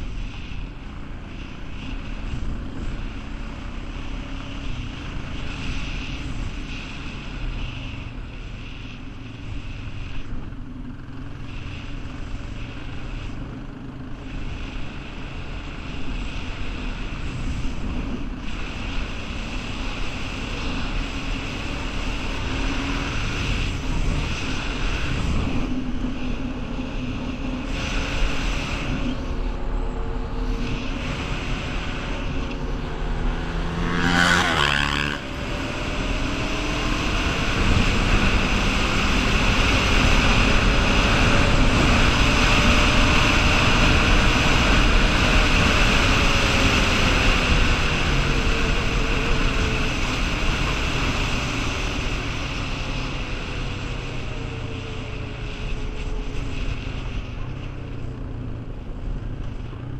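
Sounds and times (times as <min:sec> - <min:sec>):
wind on microphone: 0:14.3 - 0:57.6
atv engine revving: 0:16.7 - 0:57.6.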